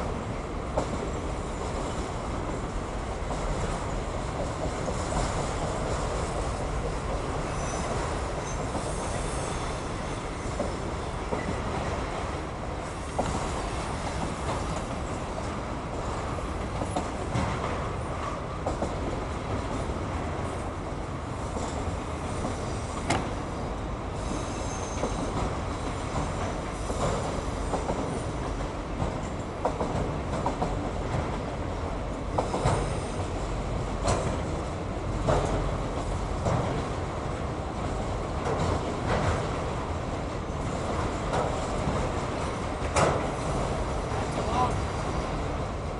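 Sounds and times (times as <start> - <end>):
train wheels rumbling on rails: 0.0 - 45.9
high wheel squeals: 7.5 - 10.6, 24.2 - 25.3.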